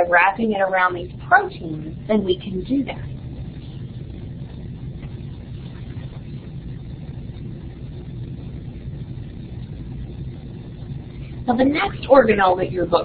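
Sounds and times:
faint hiss: 0.0s - 13.0s
low background hum: 0.0s - 13.0s.

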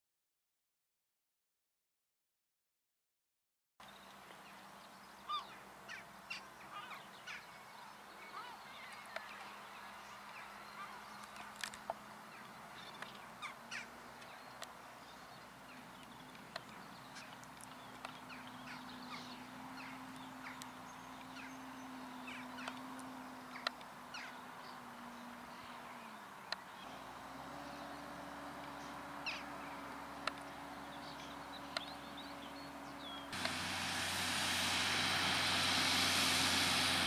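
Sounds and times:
gulls calling: 5.3s - 34.3s
distant tractor engine hum: 8.2s - 37.0s.

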